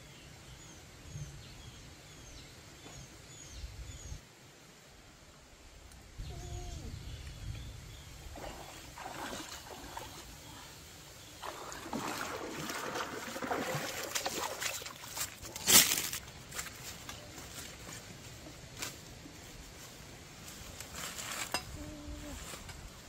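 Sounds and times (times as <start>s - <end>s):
water sloshing and splashing: 8.3s - 10.8s, 11.4s - 16.3s.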